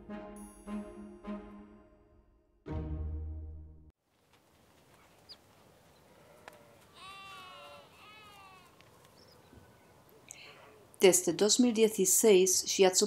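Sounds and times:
background music: 0.0 - 3.9
goat bleating: 6.2 - 8.8.

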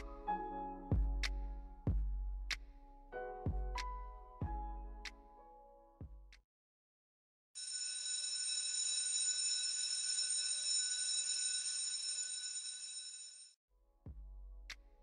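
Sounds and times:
electric school bell ringing: 7.6 - 13.5.

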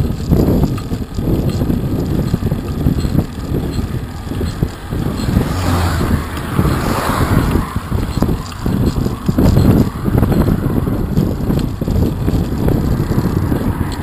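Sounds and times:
wind buffeting microphone: 0.0 - 14.0
car passing: 3.2 - 14.0.

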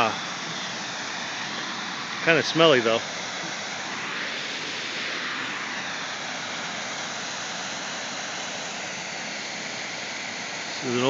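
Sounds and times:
waterfall rushing into pool: 0.0 - 4.0.

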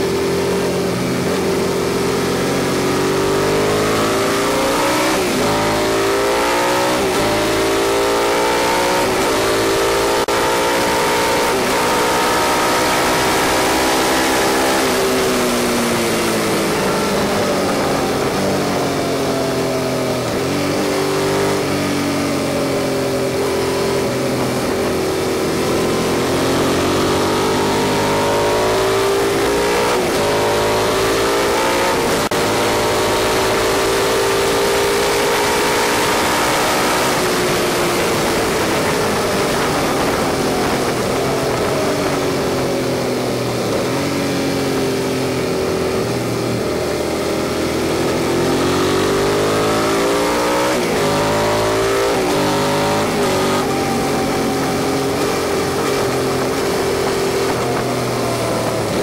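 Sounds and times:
motorcycle engine pulling hard: 0.0 - 59.0
wind rush: 37.0 - 44.0.

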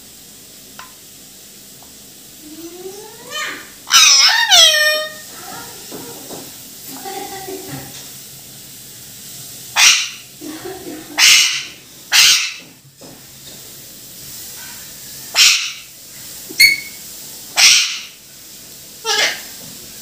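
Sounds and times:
parakeet squawking: 2.9 - 5.3, 9.8 - 10.3, 11.1 - 12.7, 15.3 - 15.9, 16.6 - 17.0, 17.6 - 18.2, 19.0 - 19.5.

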